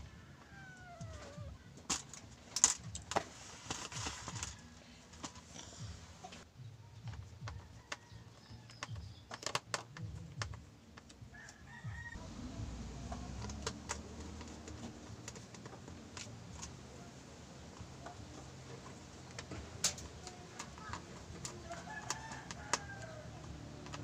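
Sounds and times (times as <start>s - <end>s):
plastic parts clicking: 7.5s - 11.2s, 18.8s - 24.0s.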